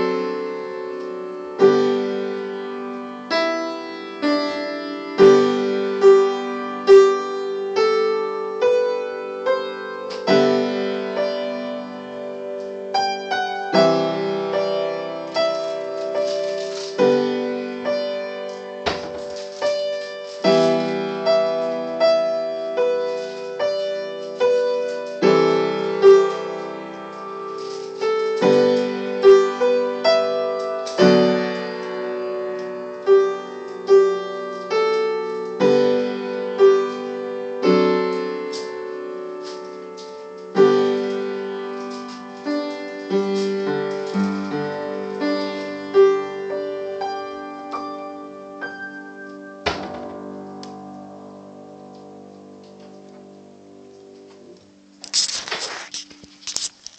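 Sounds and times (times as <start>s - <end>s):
slow piano piece: 0.0s - 56.9s.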